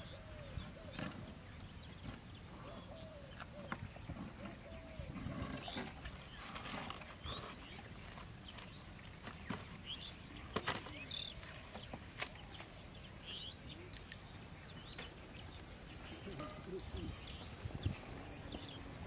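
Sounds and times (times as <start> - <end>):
bird chirps: 8.4 - 19.0.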